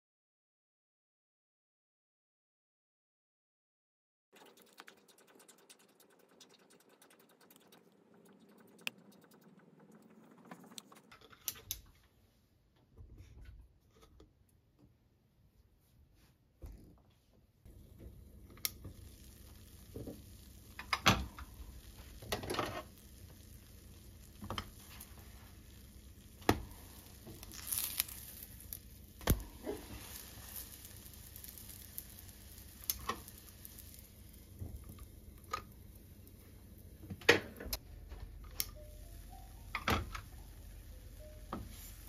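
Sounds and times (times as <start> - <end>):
pancakes sizzling in a frying pan: 17.7 - 37.1, 39.1 - 42.0.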